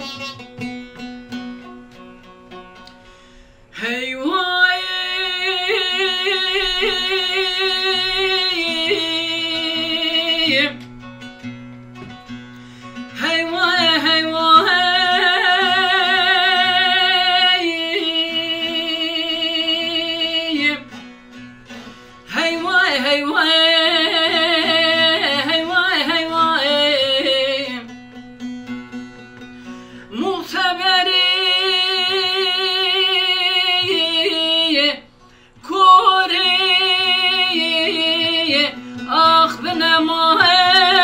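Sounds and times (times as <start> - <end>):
man singing: 3.8 - 10.8, 13.2 - 20.8, 22.3 - 27.9, 35.6 - 41.0.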